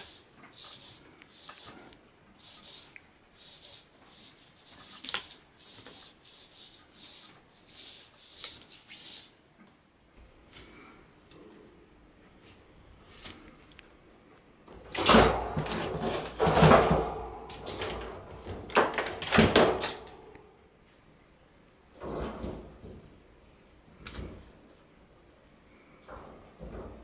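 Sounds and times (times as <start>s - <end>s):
wire cage rattling and clanking: 14.7s - 20.3s.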